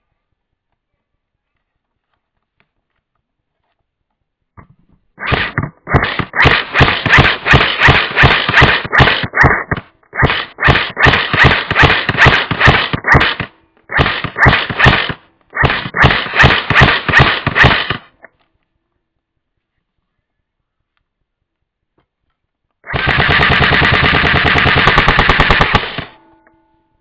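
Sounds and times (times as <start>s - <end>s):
airsoft gun firing full-auto: 5.2s - 18.2s, 22.8s - 26.2s.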